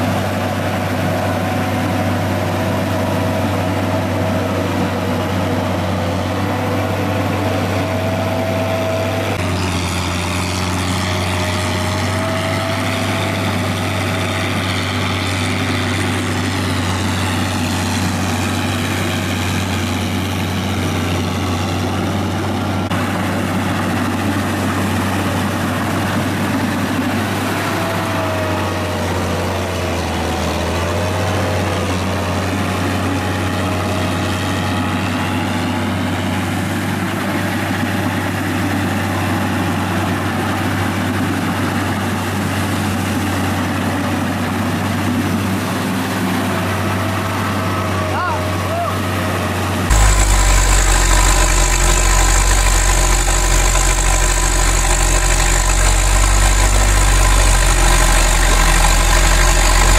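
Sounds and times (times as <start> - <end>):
tractor engine running: 0.0 - 59.9
wavering higher whine: 49.9 - 59.9.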